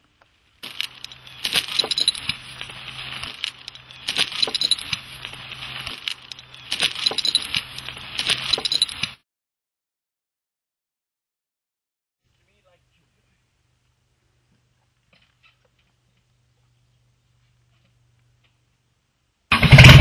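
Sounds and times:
metal chain clinking on steel: 0.6s - 2.6s, 3.2s - 5.0s, 6.0s - 9.2s
faint low hum: 12.3s - 19.5s.

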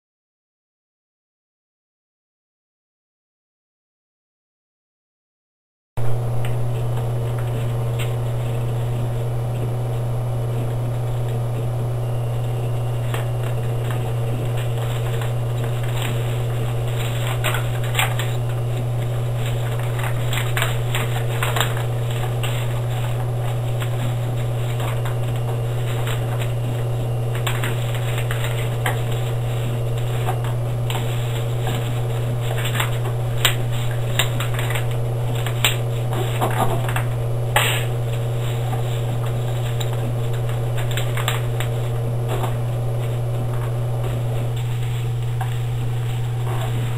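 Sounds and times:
loud steady low hum: 6.0s - 46.9s
paper being folded and creased: 6.1s - 46.9s.

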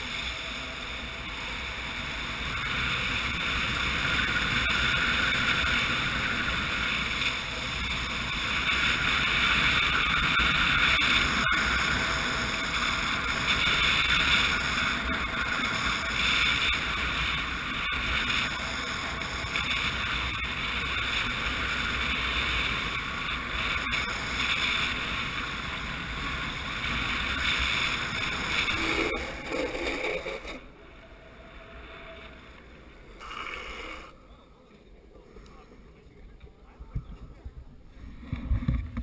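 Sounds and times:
skateboard wheels rolling on asphalt: 0.0s - 36.6s, 37.2s - 39.0s.

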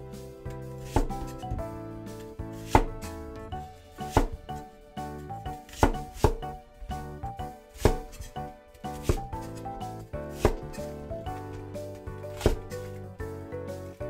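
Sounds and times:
background music: 0.0s - 14.0s
cleaver chopping on wooden board: 0.8s - 1.6s, 2.6s - 3.2s, 4.0s - 4.7s, 5.5s - 7.1s, 7.8s - 9.7s, 10.3s - 11.0s, 12.3s - 12.8s.

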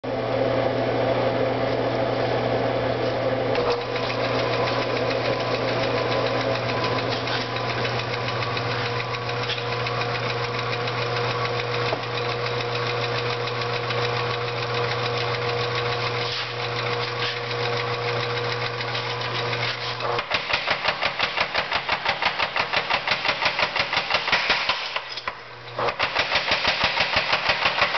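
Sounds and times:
power hammer motor humming: 3.5s - 24.4s
fast light ticking: 4.4s - 19.6s.

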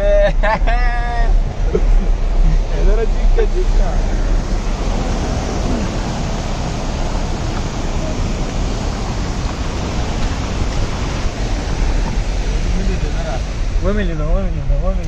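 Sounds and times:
car road and engine rumble: 0.0s - 15.0s
floodwater torrent rushing: 0.0s - 15.0s.

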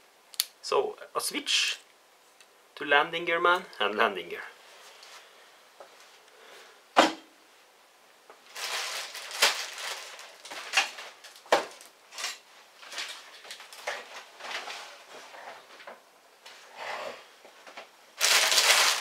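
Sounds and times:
packing paper rustling: 8.5s - 15.7s, 18.2s - 19.0s.

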